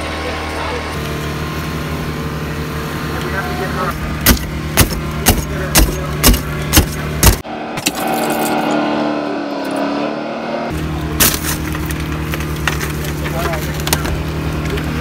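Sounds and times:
hydraulic power unit droning: 0:00.0 - 0:15.0
mechanical drone: 0:00.0 - 0:15.0
tool chopping windshield glass: 0:04.2 - 0:08.1, 0:11.2 - 0:11.9.

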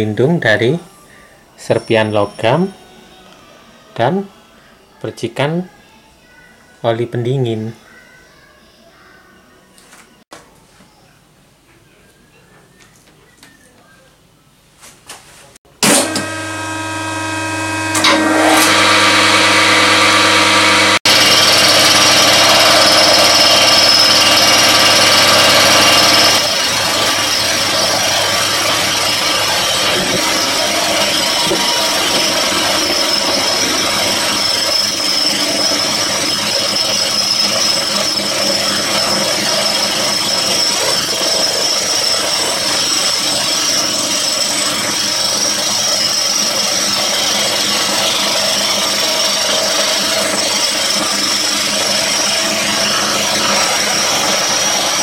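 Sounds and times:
milling cutter cutting metal: 0:15.8 - 0:55.0
milling machine motor hum: 0:15.8 - 0:55.0.

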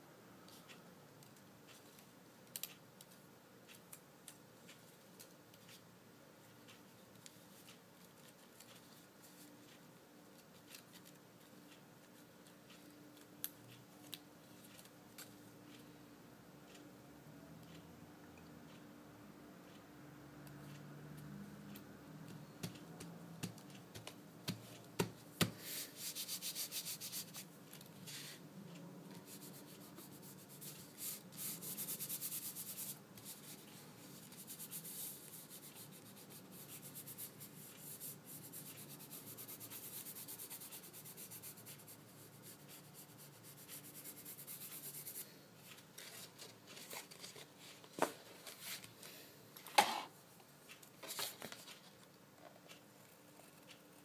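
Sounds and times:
hands rubbing paper: 0:25.4 - 0:27.5, 0:29.2 - 0:47.2.

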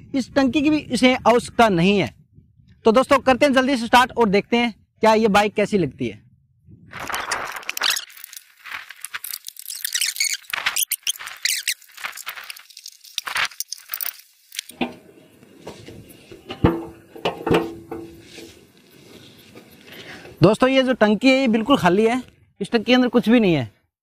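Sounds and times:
spanner squeaking and scraping: 0:07.7 - 0:14.8.

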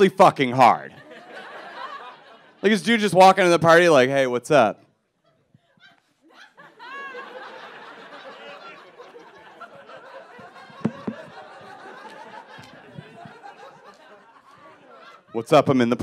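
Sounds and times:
audience laughing: 0:01.0 - 0:02.8, 0:05.7 - 0:16.0
short thumps: 0:10.7 - 0:11.5.

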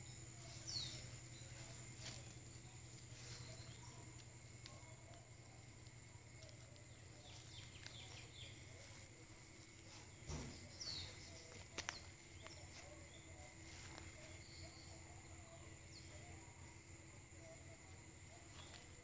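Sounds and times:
bird chirps: 0:00.0 - 0:05.0, 0:10.1 - 0:16.4.

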